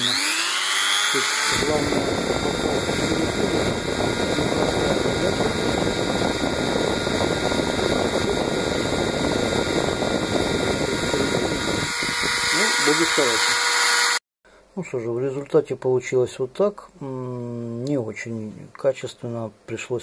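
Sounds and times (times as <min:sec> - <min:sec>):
rotary tool drilling plastic: 0:00.0 - 0:05.4, 0:09.5 - 0:14.2.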